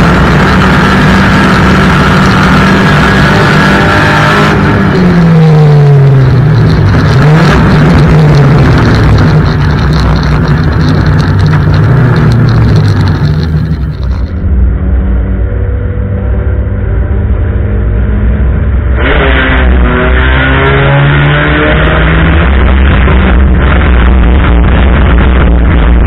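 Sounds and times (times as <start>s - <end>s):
engine revving: 0.0s - 14.4s, 15.8s - 26.0s
race car engines running: 0.0s - 14.5s.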